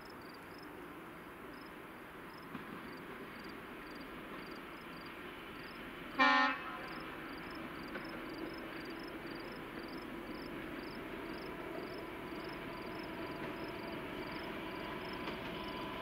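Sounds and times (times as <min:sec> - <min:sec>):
crickets chirping: 0:00.0 - 0:16.0
train hum: 0:00.0 - 0:16.0
train horn toot: 0:06.2 - 0:07.0.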